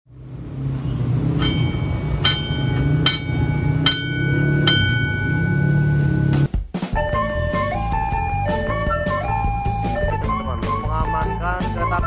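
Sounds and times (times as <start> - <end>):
low rumble: 0.1 - 6.5
level crossing warning bell: 0.8 - 6.4.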